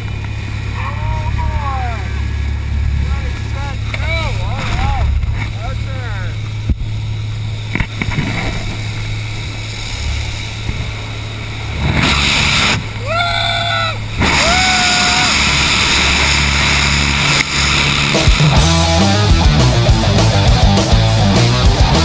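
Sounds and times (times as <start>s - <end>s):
rushing wind: 0.0s - 22.0s
small plane engine droning: 0.0s - 22.0s
high-pitched shouts: 13.0s - 15.4s.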